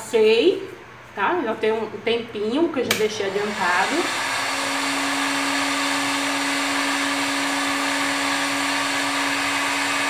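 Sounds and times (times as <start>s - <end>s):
electric motor whirring: 3.2s - 10.0s.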